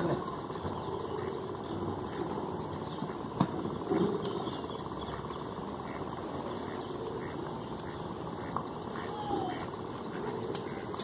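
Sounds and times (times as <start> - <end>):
open-air background noise: 0.0 - 11.0.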